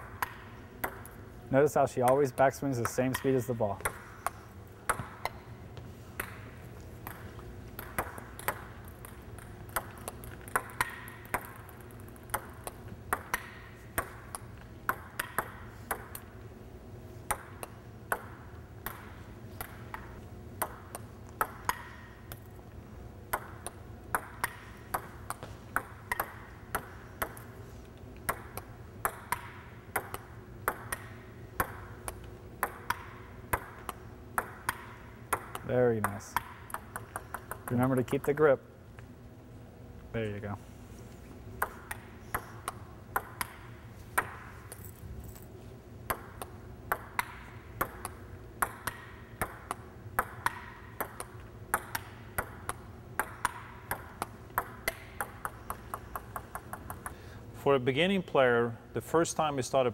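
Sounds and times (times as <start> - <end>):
ping pong ball clicking: 0.1 - 1.2, 2.8 - 5.4, 6.2 - 16.4, 17.3 - 22.5, 23.3 - 27.5, 28.2 - 38.3, 41.6 - 44.8, 46.0 - 57.2.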